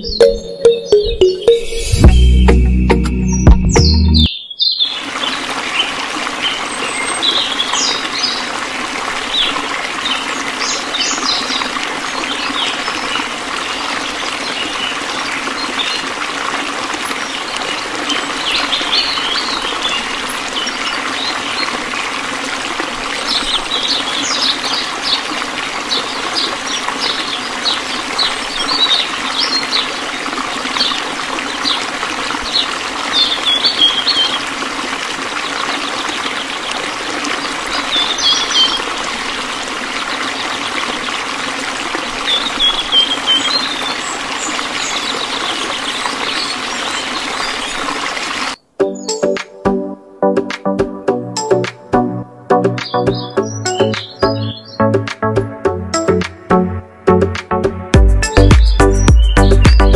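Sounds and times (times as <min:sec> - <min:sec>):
bird chirps: 0:00.0 - 0:05.0, 0:48.6 - 0:49.4, 0:52.8 - 0:54.9, 0:58.2 - 0:59.9.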